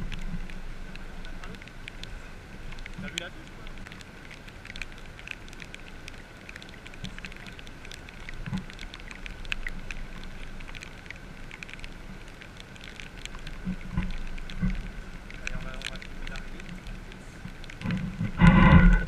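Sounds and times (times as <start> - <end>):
dull low bumps: 0.0 - 19.0
light rain pattering: 0.0 - 19.0.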